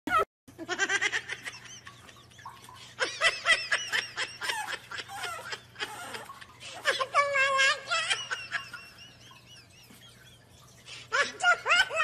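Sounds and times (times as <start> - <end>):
person laughing: 0.1 - 12.0.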